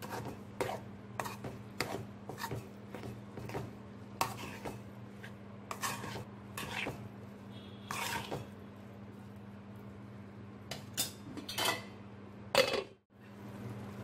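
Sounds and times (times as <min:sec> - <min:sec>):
metal spoon scraping a pan: 0:00.0 - 0:03.6, 0:04.2 - 0:08.6, 0:10.8 - 0:11.9.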